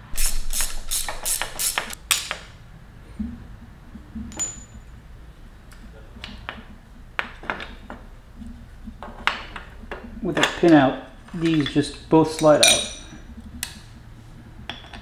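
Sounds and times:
hand tool clicking: 0:00.1 - 0:02.0
light metal clinks: 0:11.4 - 0:13.1.

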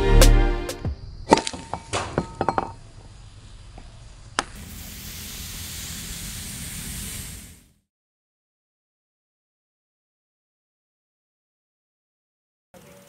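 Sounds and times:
glass shards clinking: 0:01.3 - 0:02.8
heater coil sizzling in liquid: 0:04.6 - 0:07.8.

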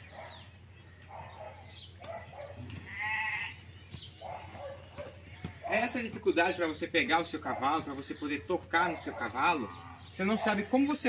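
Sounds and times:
bird chirps: 0:00.0 - 0:11.0
animal bleating: 0:02.6 - 0:03.7.

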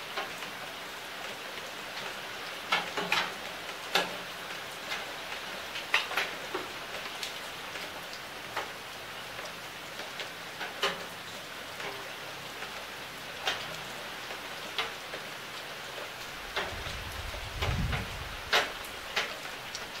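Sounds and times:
rain falling on leaves: 0:00.0 - 0:20.0.

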